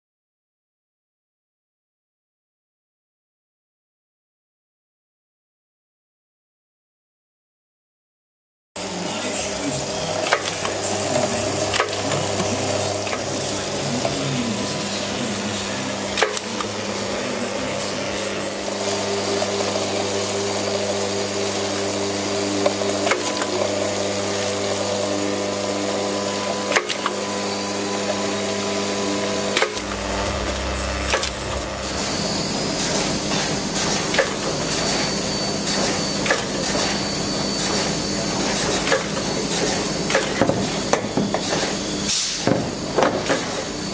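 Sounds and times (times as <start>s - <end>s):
labelling machine humming: 8.8s - 43.9s
sharp clicks and knocks from conveyor: 10.2s - 13.3s, 16.2s - 16.8s, 22.6s - 23.8s, 26.7s - 27.2s, 29.5s - 30.0s, 32.8s - 37.0s, 37.6s - 43.7s.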